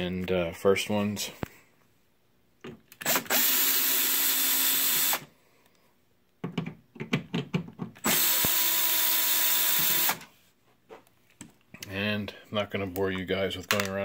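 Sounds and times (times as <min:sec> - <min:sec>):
cordless drill motor whine: 0:03.0 - 0:05.3, 0:08.0 - 0:10.2.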